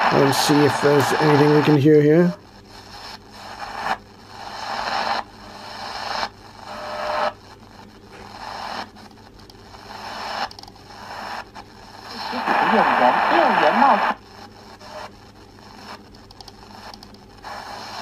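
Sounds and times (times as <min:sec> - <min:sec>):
shortwave radio static hiss: 0:00.0 - 0:18.0
faint radio whistle: 0:06.7 - 0:07.4.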